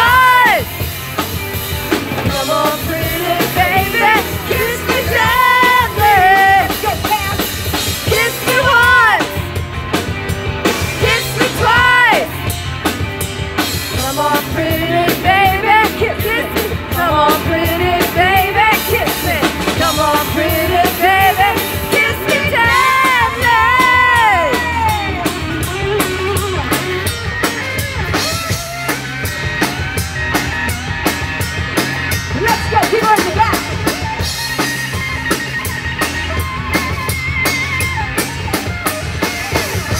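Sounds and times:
drum kit: 0:00.0 - 0:39.9
electric guitar: 0:00.0 - 0:39.9
woman singing into a microphone: 0:02.3 - 0:06.8, 0:08.1 - 0:09.3, 0:11.0 - 0:12.3, 0:14.0 - 0:26.6.

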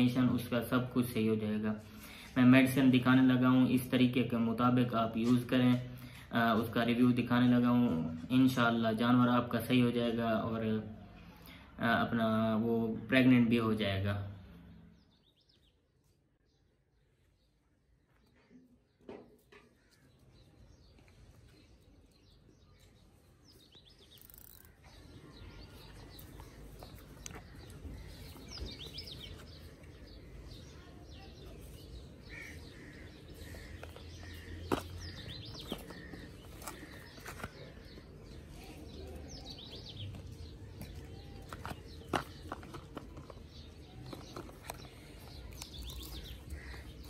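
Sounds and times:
small birds chirping: 0:00.0 - 0:47.0.

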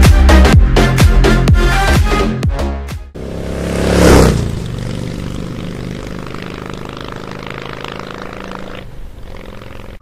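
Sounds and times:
engine rushing swell: 0:03.2 - 0:09.9
steady engine drone: 0:03.2 - 0:10.0.

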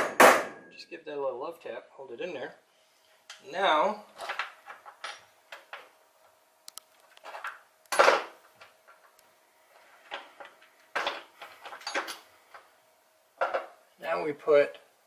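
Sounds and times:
loud metal clack: 0:00.0 - 0:00.7
small metal hardware clinking: 0:11.0 - 0:12.2.

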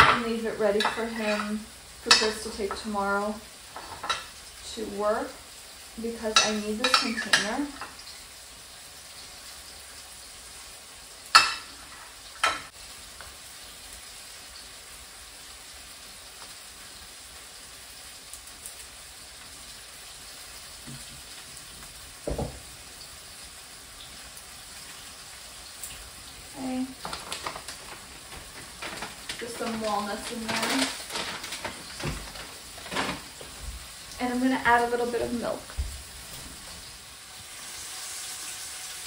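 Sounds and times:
chicken sizzling in a pan: 0:00.0 - 0:39.0
dull knock: 0:22.3 - 0:22.6.

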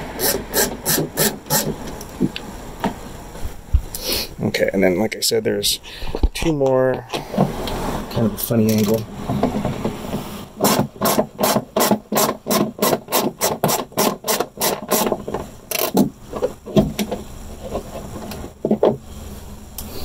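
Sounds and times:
hand ratchet rasping: 0:00.2 - 0:01.8, 0:10.6 - 0:16.0.

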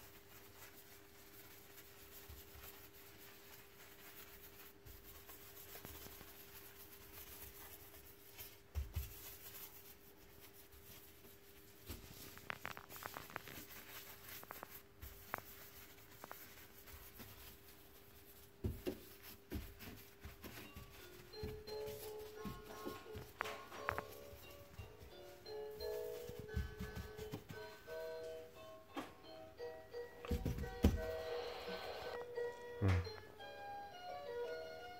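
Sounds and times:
paper towel rubbing glass surface: 0:00.0 - 0:21.2.

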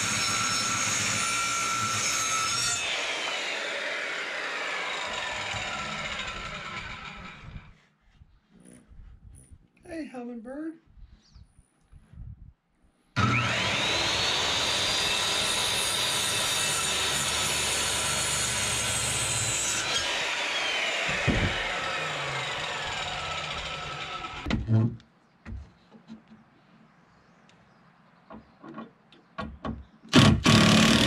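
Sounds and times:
circular saw cutting wood: 0:00.0 - 0:07.8, 0:13.2 - 0:24.5, 0:30.2 - 0:31.0
knocks: 0:28.3 - 0:30.4.

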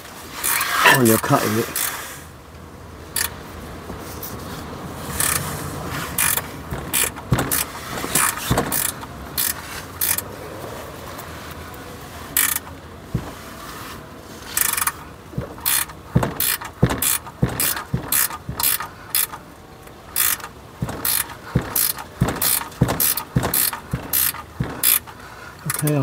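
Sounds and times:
ratcheting spanner clicking: 0:00.4 - 0:02.0, 0:03.1 - 0:03.4, 0:05.1 - 0:05.5, 0:06.2 - 0:10.3, 0:12.4 - 0:13.4, 0:14.5 - 0:26.0.

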